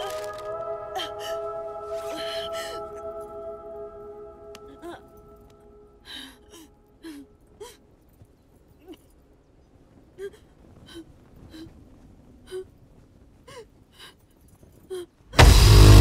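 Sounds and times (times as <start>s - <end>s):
woman gasping and whimpering: 0.8s - 3.2s, 4.6s - 5.2s, 6.0s - 7.8s
loud music: 15.4s - 16.0s.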